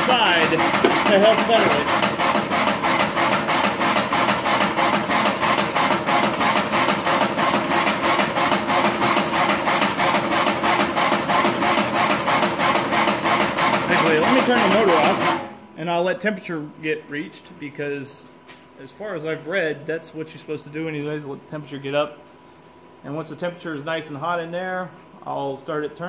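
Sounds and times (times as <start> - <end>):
coffee roaster drum humming: 0.0 - 15.6.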